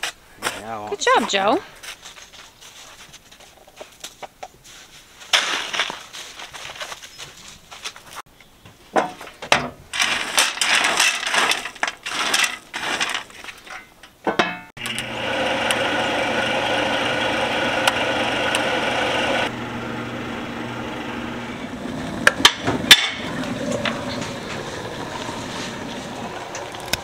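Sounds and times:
pellet grill motor hum: 14.8s - 27.0s.

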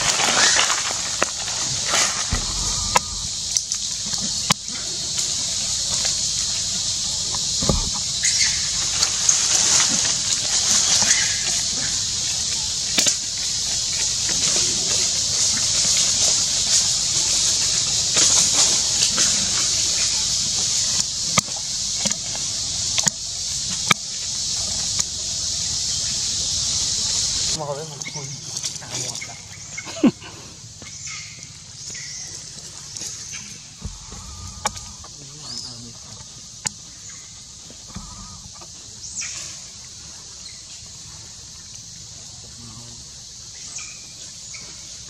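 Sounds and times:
rustling dry leaves: 0.0s - 27.6s
insect chorus buzzing hiss: 0.0s - 45.0s
low thump: 2.3s - 3.6s, 7.6s - 8.2s, 33.8s - 35.1s.

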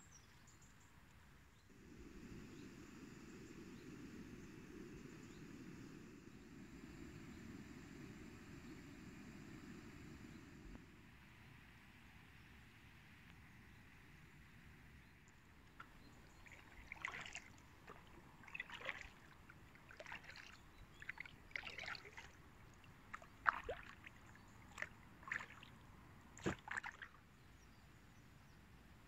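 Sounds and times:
paddle splashing in water: 15.7s - 25.8s, 26.4s - 27.2s.

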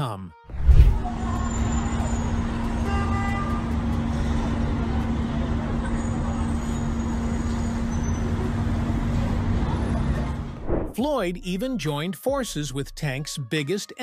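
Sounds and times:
low rumble of traffic: 0.5s - 11.0s.

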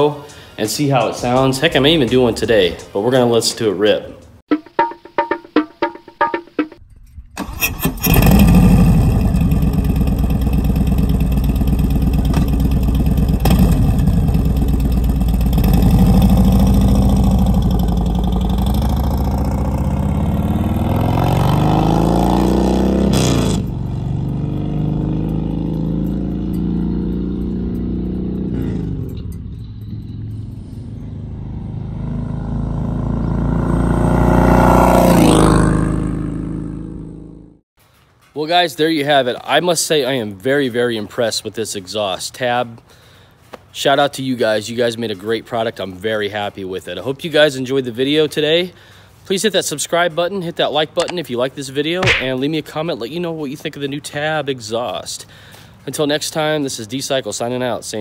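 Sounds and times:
motorcycle engine revving: 7.4s - 37.6s.

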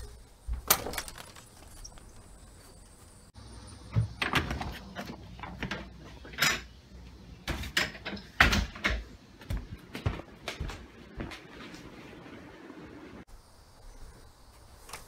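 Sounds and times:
footsteps indoors: 9.0s - 12.2s.

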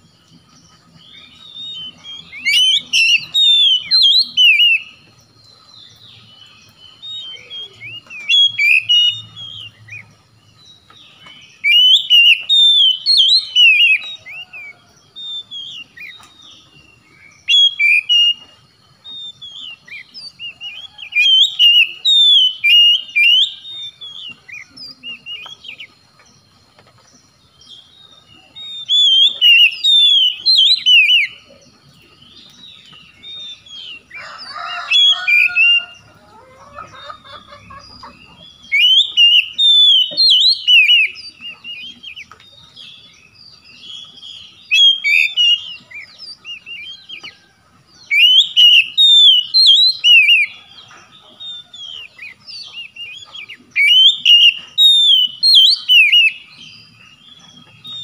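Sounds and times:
bird singing whistled phrases: 1.1s - 5.1s, 6.2s - 10.1s, 11.1s - 18.5s, 19.1s - 26.0s, 27.7s - 31.6s, 38.0s - 43.3s, 44.0s - 47.4s, 48.0s - 50.8s, 51.4s - 58.0s.

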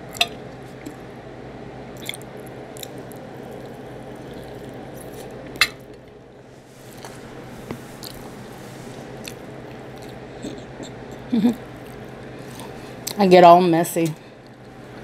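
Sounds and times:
steady low hum: 0.0s - 15.0s
wet chewing and lip smacks: 2.0s - 5.3s, 9.2s - 13.2s.

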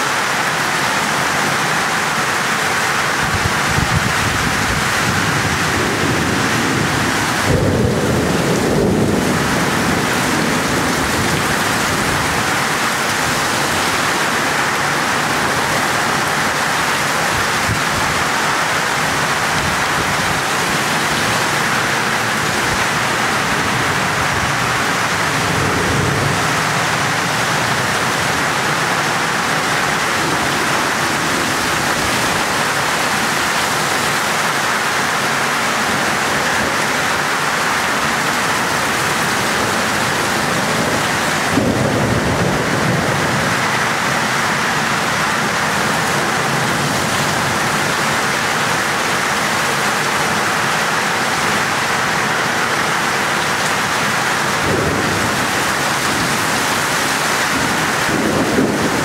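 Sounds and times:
heavy rain pouring: 0.0s - 59.0s
low thunder rumble: 3.7s - 14.2s, 19.1s - 32.8s, 39.6s - 43.8s, 57.5s - 59.0s.

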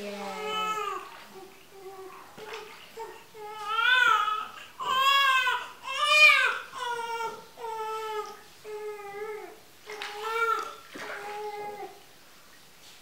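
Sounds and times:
newborn baby crying: 3.0s - 10.8s.

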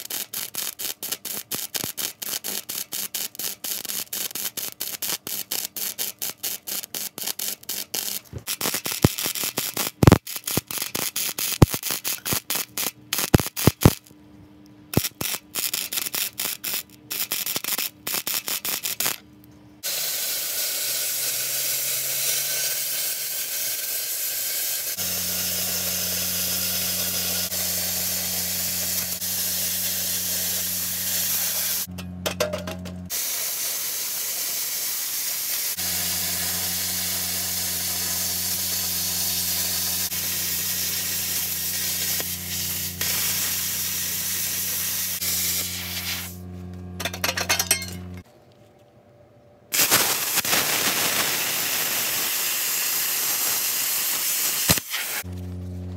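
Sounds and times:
plasma cutter hissing: 0.0s - 14.0s, 19.8s - 31.9s, 33.1s - 46.4s, 49.8s - 55.3s
electrical hum: 24.9s - 33.1s, 35.8s - 48.2s, 55.2s - 55.9s.

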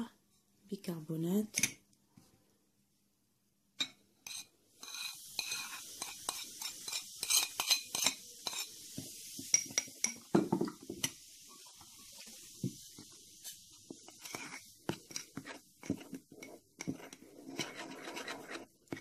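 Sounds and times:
ceramic saucer scraping bowl: 4.2s - 8.8s, 13.4s - 19.0s.

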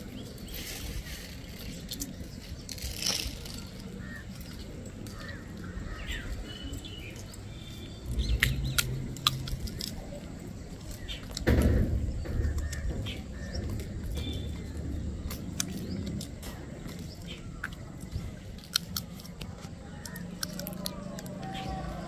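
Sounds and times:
low rumbling: 0.0s - 22.0s
small birds chirping: 0.0s - 22.0s
sharp clicks: 8.1s - 10.3s, 10.9s - 22.0s.

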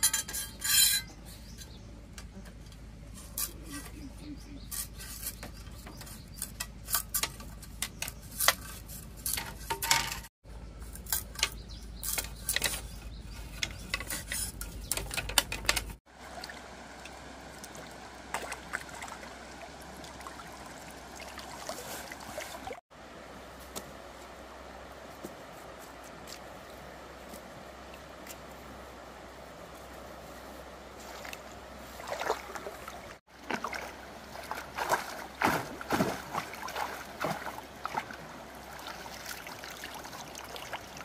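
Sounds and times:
river water flowing: 16.1s - 41.0s.

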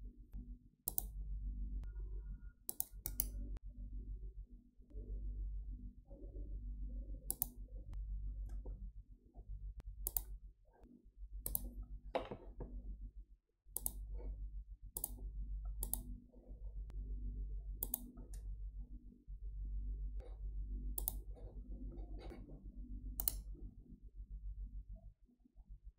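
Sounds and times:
low steady hum: 0.0s - 13.2s, 13.8s - 25.9s
computer mouse clicking: 0.9s - 1.2s, 2.7s - 3.4s, 7.3s - 7.6s, 10.0s - 10.4s, 11.4s - 11.7s, 13.8s - 14.1s, 15.0s - 16.2s, 17.8s - 18.5s, 21.0s - 21.3s, 23.2s - 23.5s.

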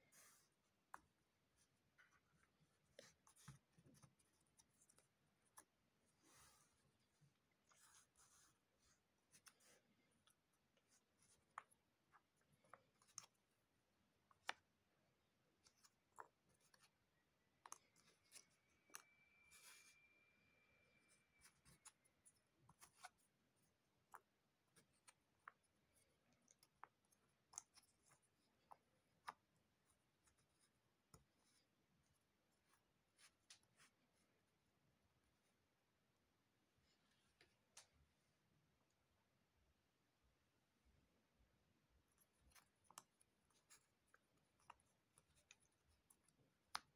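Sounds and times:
faint thin tone: 18.5s - 21.8s.

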